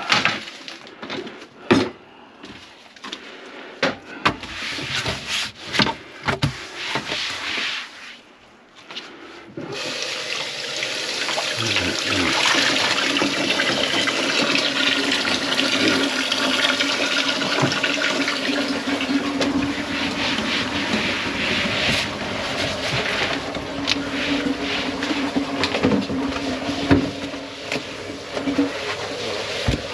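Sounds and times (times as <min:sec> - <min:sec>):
water rushing from faucet: 0:09.7 - 0:29.9.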